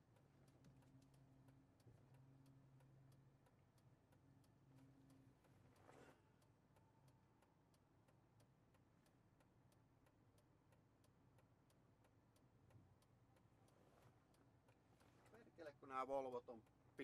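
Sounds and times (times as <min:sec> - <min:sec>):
car turn signal ticking: 0:00.0 - 0:05.6.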